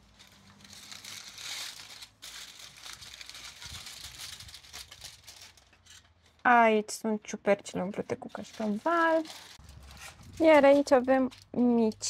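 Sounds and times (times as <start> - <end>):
wrapping crinkling and crumpling: 0.0 - 6.5, 8.0 - 12.0.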